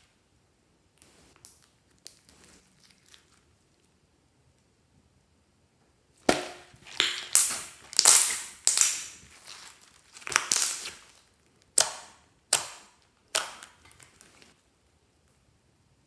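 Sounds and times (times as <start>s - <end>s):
slime popping and crackling: 6.2s - 14.6s.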